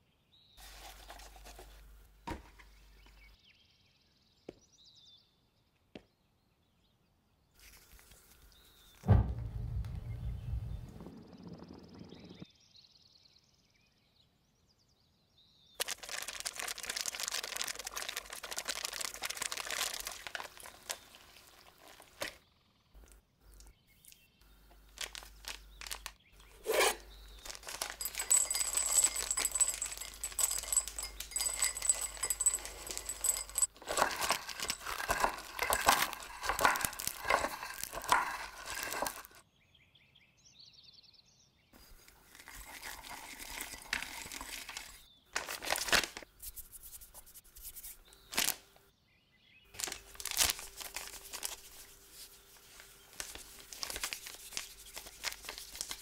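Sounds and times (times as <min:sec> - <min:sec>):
crackling and crunching: 0:15.8 - 0:22.4, 0:24.4 - 0:39.4, 0:41.8 - 0:46.3, 0:49.7 - 0:56.0
plastic packets crinkling: 0:15.8 - 0:22.4, 0:24.7 - 0:26.6, 0:27.2 - 0:39.4, 0:42.0 - 0:46.3, 0:48.2 - 0:48.8, 0:49.7 - 0:56.0.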